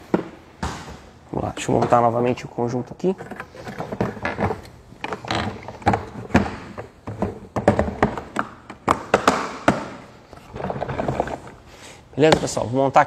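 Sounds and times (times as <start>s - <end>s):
plastic parts knocking: 3.2s - 11.6s.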